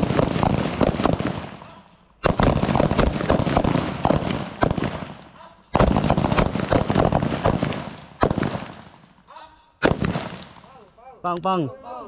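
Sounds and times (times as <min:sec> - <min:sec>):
rapid rifle fire: 0:00.0 - 0:01.6, 0:02.2 - 0:09.0, 0:09.8 - 0:10.7.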